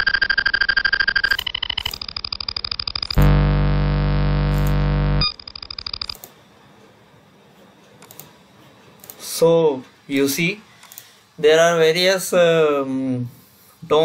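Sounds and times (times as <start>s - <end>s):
synthetic buzzing test tone: 3.1s - 5.4s
faint clicks: 10.8s - 11.1s.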